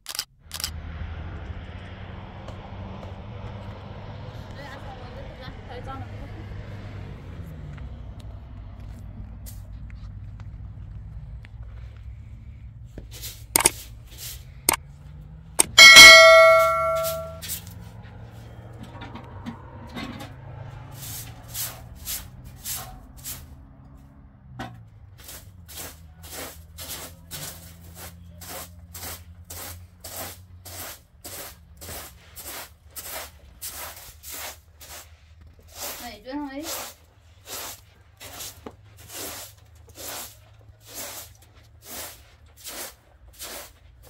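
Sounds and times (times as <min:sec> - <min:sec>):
sharp clicks: 0:00.0 - 0:00.7, 0:13.6 - 0:13.8
loud metallic clang: 0:15.6 - 0:17.4.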